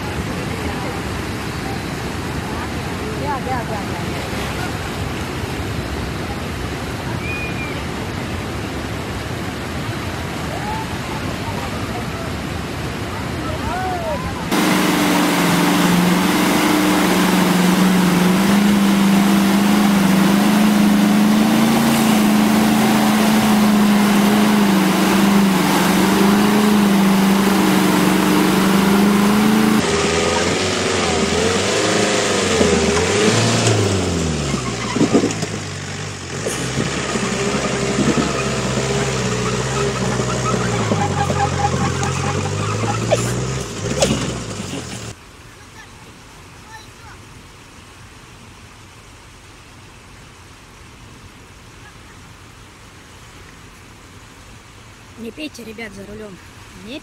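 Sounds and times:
rushing river water: 0.0s - 57.0s
truck engine pulling: 14.4s - 45.2s
truck engine revving: 14.5s - 45.2s.

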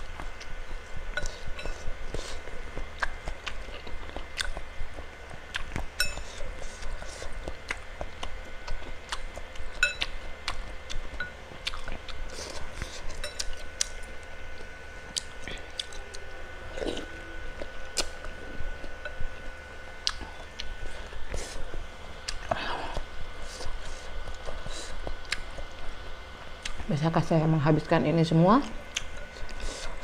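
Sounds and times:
chewing with wet mouth clicks: 0.2s - 16.2s, 16.8s - 21.5s, 22.2s - 26.0s, 26.6s - 26.9s, 28.7s - 30.0s
metal fork clinking on bowl: 6.0s - 6.3s, 9.8s - 10.1s, 13.2s - 13.5s.

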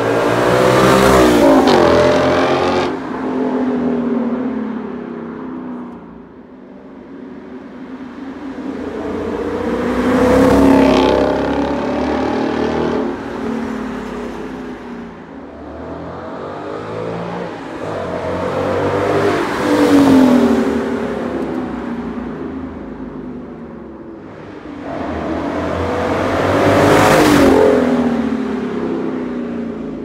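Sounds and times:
car accelerating past: 24.4s - 28.8s.

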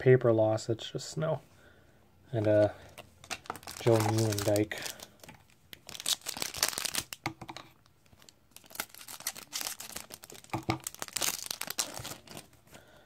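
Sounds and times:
card pack wrapper crinkling and tearing: 2.4s - 7.4s, 8.0s - 12.6s.

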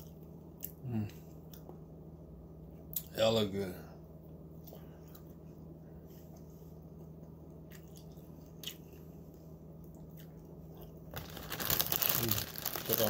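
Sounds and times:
steady low hum: 0.0s - 13.0s
person chewing food: 6.1s - 12.8s.

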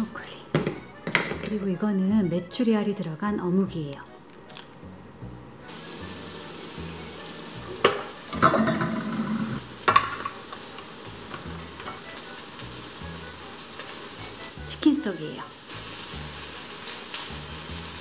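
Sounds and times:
patties sizzling in a pan: 5.7s - 18.0s.

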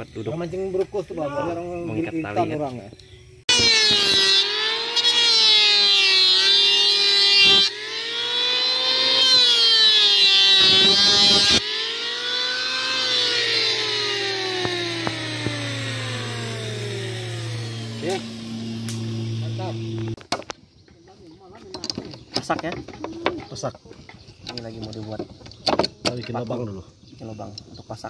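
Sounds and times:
electric wood planer whining: 3.5s - 20.2s.

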